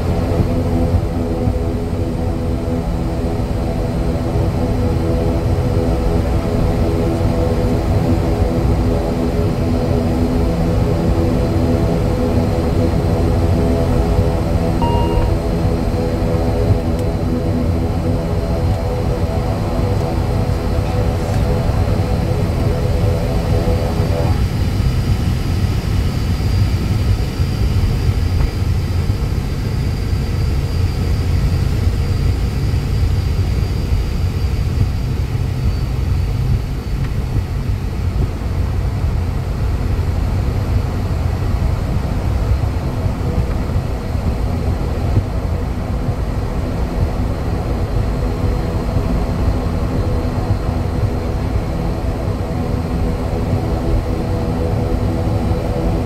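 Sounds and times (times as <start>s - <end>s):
deep turboprop engine rumble: 0.0s - 56.0s
steady mid-pitched tones: 14.8s - 15.8s
faint high whine: 14.8s - 18.1s.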